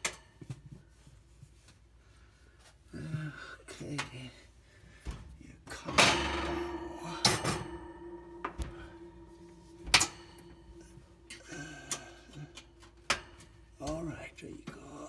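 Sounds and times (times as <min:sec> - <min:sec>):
metallic clicks and knocks: 0:05.9 - 0:14.1.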